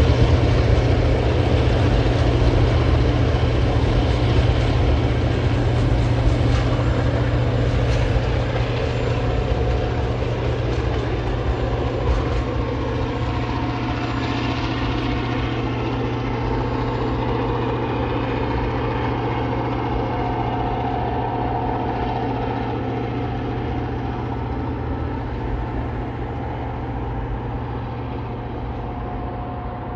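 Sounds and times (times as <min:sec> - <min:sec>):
train wheel clicks: 0:00.0 - 0:19.6
diesel locomotive drone: 0:00.0 - 0:29.9
freight train passing: 0:00.0 - 0:29.9.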